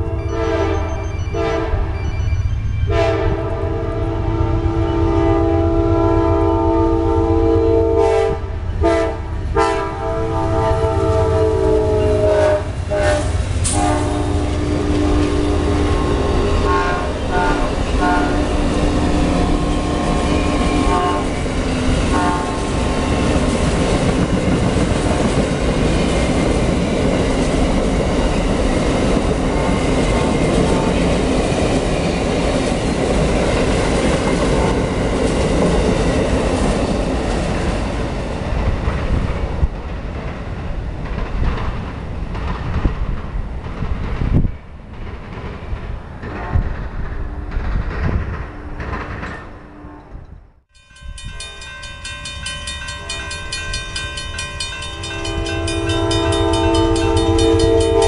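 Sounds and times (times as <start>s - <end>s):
train air horn blasts: 0.0s - 2.0s, 2.9s - 23.2s, 46.2s - 47.6s, 54.9s - 58.0s
train cars rumbling: 0.0s - 58.0s
wheels clacking over rail joints: 16.2s - 49.6s.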